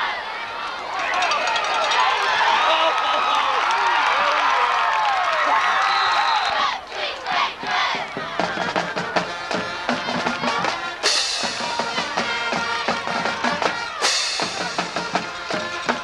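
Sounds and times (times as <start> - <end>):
band music with drums: 7.6 - 16.0.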